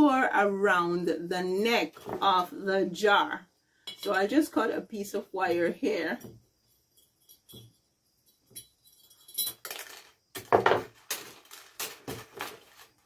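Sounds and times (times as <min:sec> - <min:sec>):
metal wire clinking and scraping: 0:06.1 - 0:13.0.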